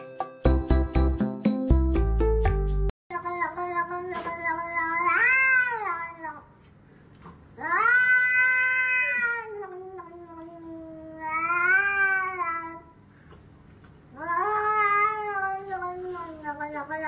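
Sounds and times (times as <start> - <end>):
cat yowling: 4.6 - 6.4, 7.6 - 12.8, 14.1 - 17.0.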